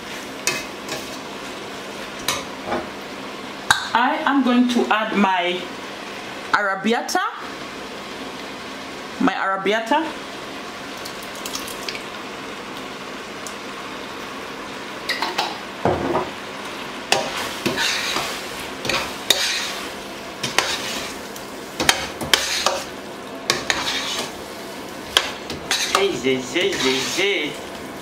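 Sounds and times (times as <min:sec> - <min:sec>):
food sizzling in a pot: 0:00.0 - 0:28.0
metal spoon scraping a pot: 0:17.2 - 0:19.8, 0:20.4 - 0:21.1, 0:21.8 - 0:22.9, 0:23.5 - 0:24.3, 0:25.2 - 0:27.4.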